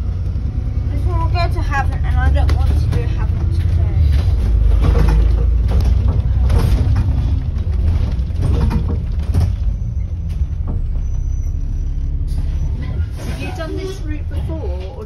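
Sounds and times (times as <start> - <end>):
bus engine and road rumble: 0.0 - 15.0
bodywork knocks and rattles: 2.0 - 11.3.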